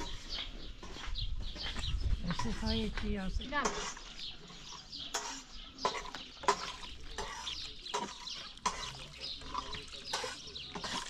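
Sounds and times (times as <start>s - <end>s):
stone quern grinding grain: 2.3s - 11.0s.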